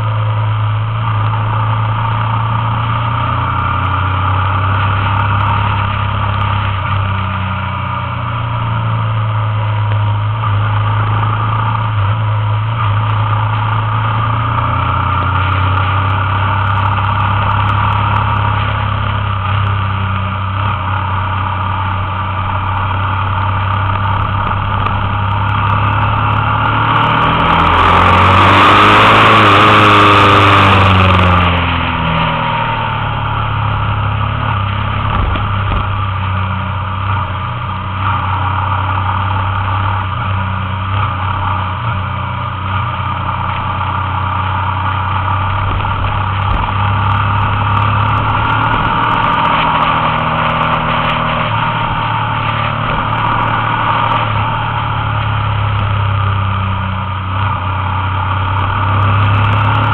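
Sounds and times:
motorcycle engine running: 0.0 - 59.9
road noise: 0.0 - 59.9
wind noise: 15.5 - 38.2, 44.6 - 56.5.

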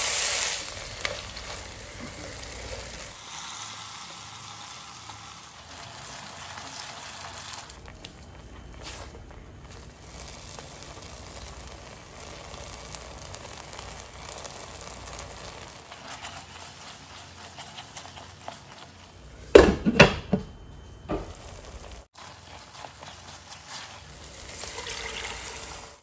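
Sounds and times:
paste sizzling in a frying pan: 0.0 - 7.9, 8.8 - 19.5, 21.1 - 26.0
spatula stirring: 8.6 - 19.4, 21.2 - 25.9.

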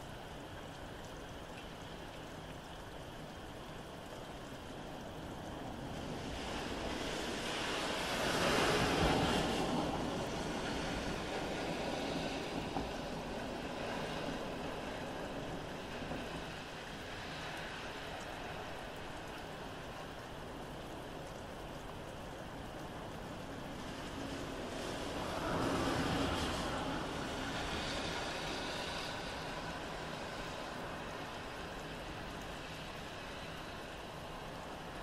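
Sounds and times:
steady rain: 0.0 - 35.0
car tyres hissing on wet road: 5.6 - 20.1, 23.2 - 35.0.

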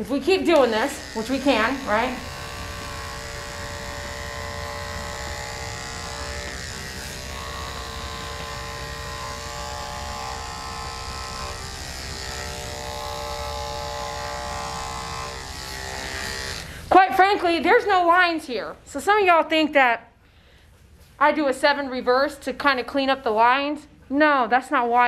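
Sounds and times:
electric clipper shaving hair: 0.2 - 16.9.

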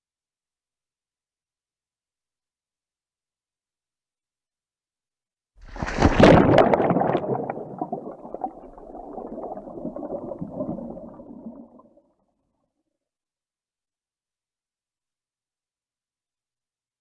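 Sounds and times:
water splashing rush: 5.6 - 11.5.

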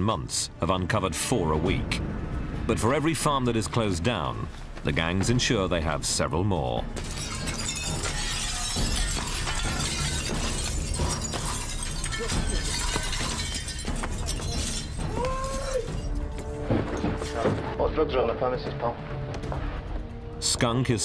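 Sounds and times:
glass shattering: 6.9 - 17.4.

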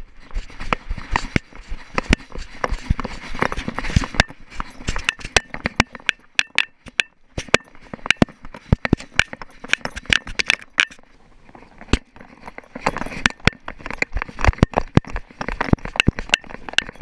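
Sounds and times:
paws scuffing stones: 0.2 - 6.2
metal collar tags jingling: 12.0 - 14.0.

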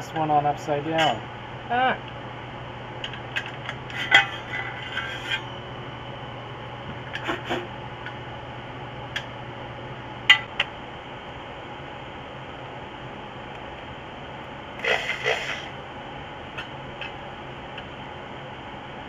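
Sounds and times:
metal tube scraping: 3.9 - 5.5, 14.8 - 15.8.

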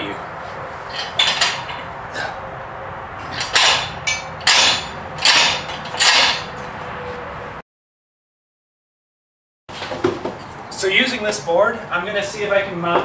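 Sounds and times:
metallic scrapes and clatters: 0.8 - 1.9, 3.2 - 6.8.

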